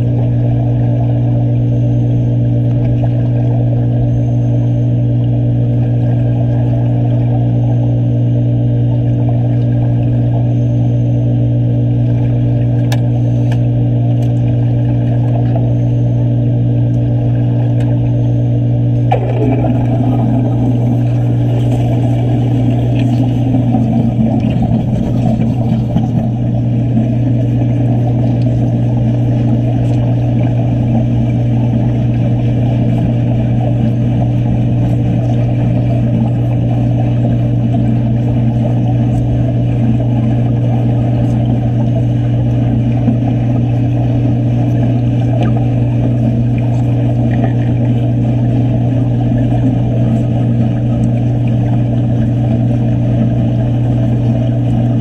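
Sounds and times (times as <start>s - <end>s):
machine droning underwater: 0.0s - 55.0s.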